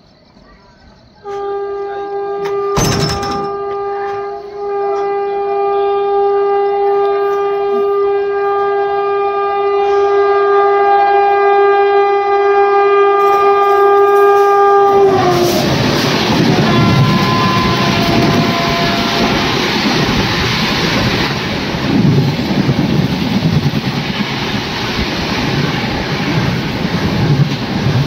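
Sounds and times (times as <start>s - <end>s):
rush of passing train: 0.0s - 28.0s
train horn blast: 1.2s - 21.4s.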